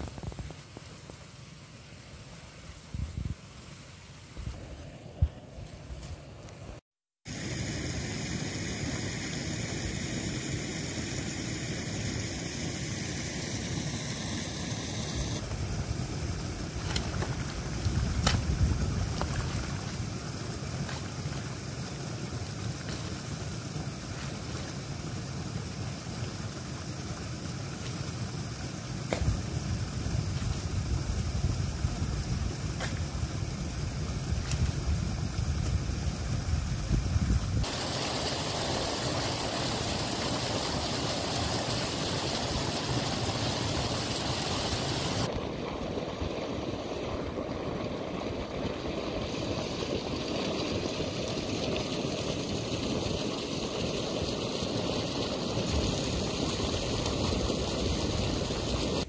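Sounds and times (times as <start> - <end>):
wind rumble on microphone: 2.9 - 3.4, 15.4 - 20.0, 29.1 - 37.7
water running and splashing: 12.1 - 59.0.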